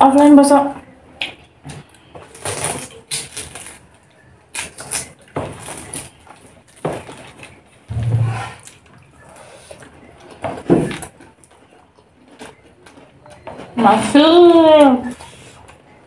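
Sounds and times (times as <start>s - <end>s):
low hum: 7.9s - 8.8s.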